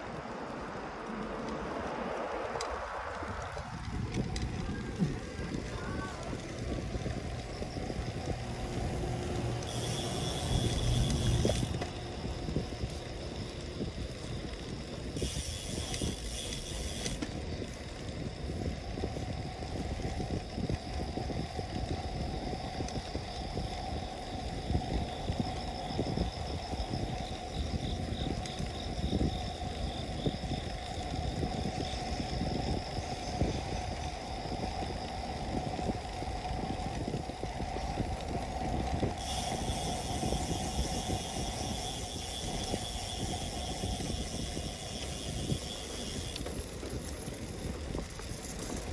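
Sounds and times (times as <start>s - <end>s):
road rumble: 0.0s - 48.9s
hiss: 39.2s - 46.4s.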